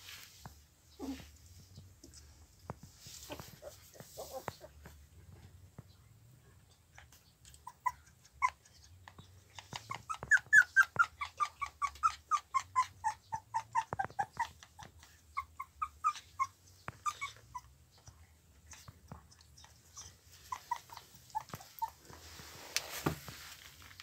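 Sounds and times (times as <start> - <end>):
puppy whimpering and yelping: 3.3 - 4.8, 7.0 - 18.1, 18.7 - 22.1.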